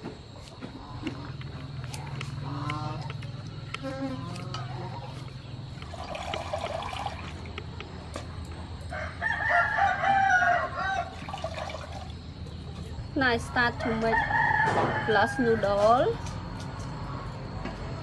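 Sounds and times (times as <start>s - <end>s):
rooster crowing: 8.8s - 11.3s, 13.8s - 16.0s.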